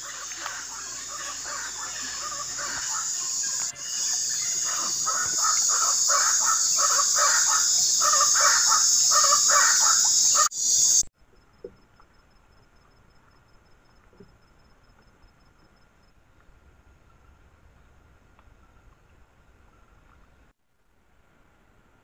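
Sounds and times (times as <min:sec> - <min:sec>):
bird calling: 0:00.0 - 0:11.0
high-pitched insect chorus: 0:00.0 - 0:11.0.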